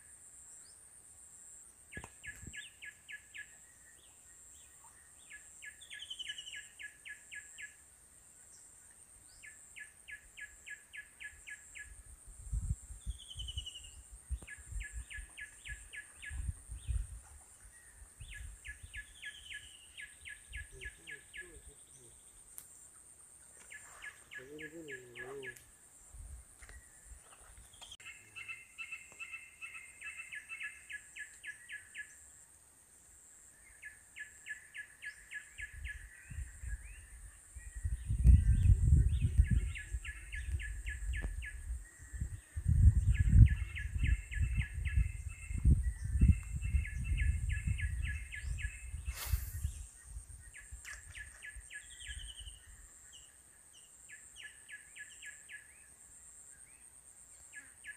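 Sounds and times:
bird chirping: 0:01.9 - 0:07.8, 0:13.0 - 0:25.6, 0:33.6 - 0:55.9.

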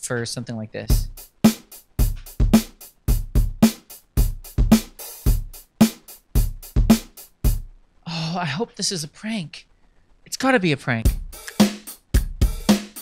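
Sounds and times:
rock drum groove: 0:00.9 - 0:07.8, 0:11.1 - 0:13.0.

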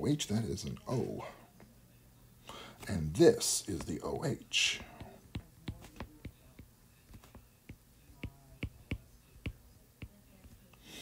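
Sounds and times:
stylus tapping on tablet screen: 0:04.7 - 0:10.8.

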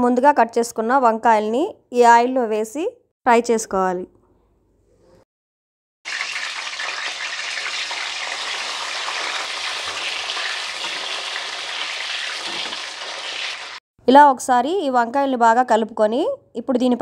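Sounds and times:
vegetables sizzling in hot oil: 0:06.1 - 0:13.8.

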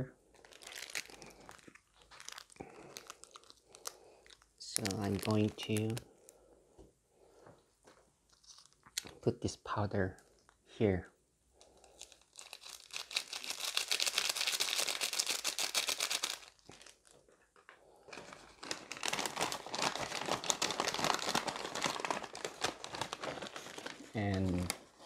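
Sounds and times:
packaging crinkling: 0:00.2 - 0:06.4, 0:08.2 - 0:09.1, 0:11.6 - 0:25.0
paper bag rustling and crumpling: 0:00.3 - 0:06.0, 0:18.1 - 0:25.0.

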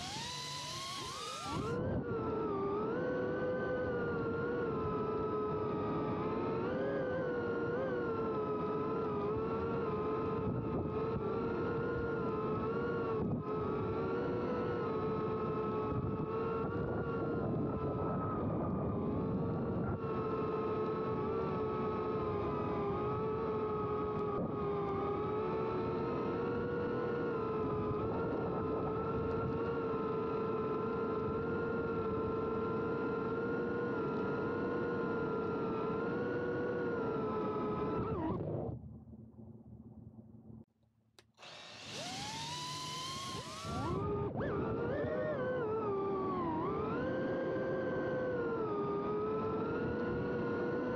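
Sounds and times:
drone propellers whining: 0:00.0 - 0:04.4, 0:41.4 - 0:49.5.

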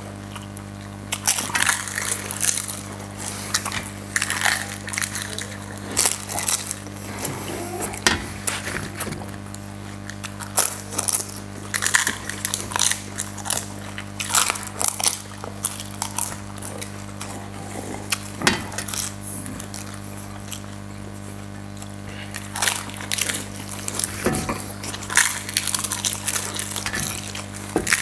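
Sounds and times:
steady low hum: 0:00.0 - 0:28.0
crisp shells crunching: 0:01.1 - 0:20.8, 0:21.8 - 0:28.0.

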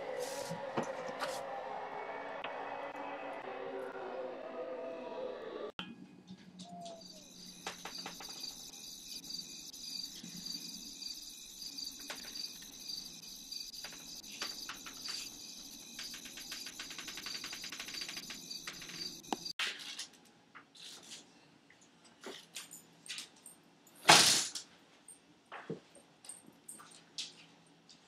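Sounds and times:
insects chirring: 0:06.6 - 0:19.5.

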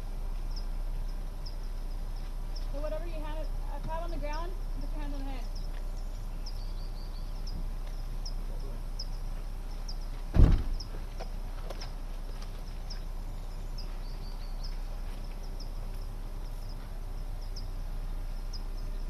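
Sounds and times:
dull thump: 0:10.3 - 0:11.3.

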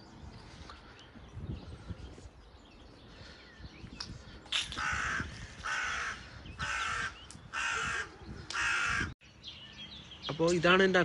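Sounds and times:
crow cawing: 0:04.8 - 0:09.1.

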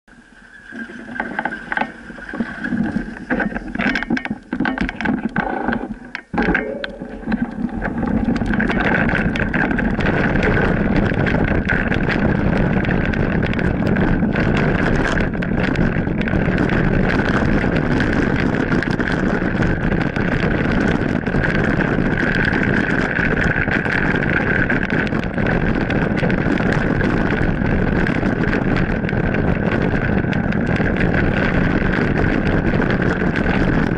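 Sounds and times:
bike tyres on gravel: 0:00.1 - 0:33.9
pickup truck driving on gravel: 0:07.6 - 0:33.9.

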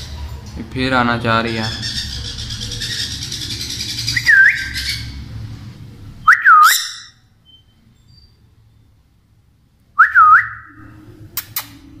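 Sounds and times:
parrot squawking: 0:01.4 - 0:05.3, 0:06.3 - 0:07.2
shrill parrot calls: 0:01.7 - 0:05.2, 0:06.3 - 0:08.4
parrot whistled call: 0:02.5 - 0:05.1, 0:06.3 - 0:07.7, 0:10.0 - 0:10.8.

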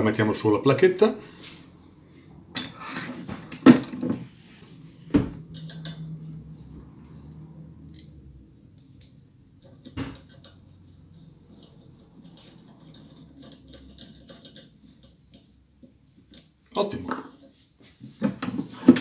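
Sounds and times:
small metal clicks and scrapes: 0:05.4 - 0:17.5.

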